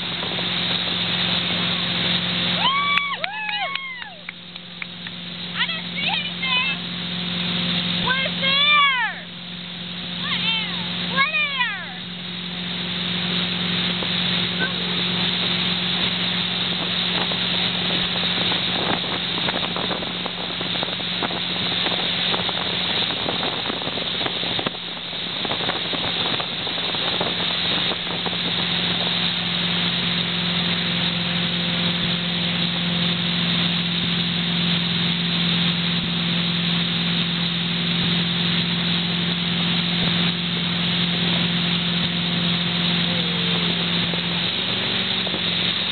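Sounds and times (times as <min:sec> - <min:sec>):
motorboat engine droning: 0:00.0 - 0:45.9
rush of boat wake: 0:00.0 - 0:45.9
wind buffeting microphone: 0:13.9 - 0:30.1.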